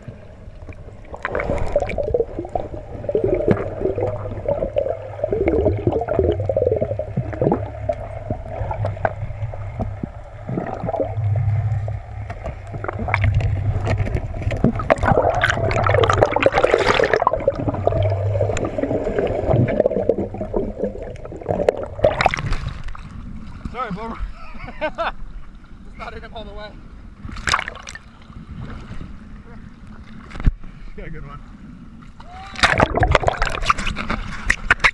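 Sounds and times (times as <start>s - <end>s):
steady low hum: 0.0s - 25.7s
muffled gurgling water: 0.0s - 34.9s
hissing rush of bubbles: 1.0s - 11.8s, 14.5s - 22.9s, 32.6s - 33.9s.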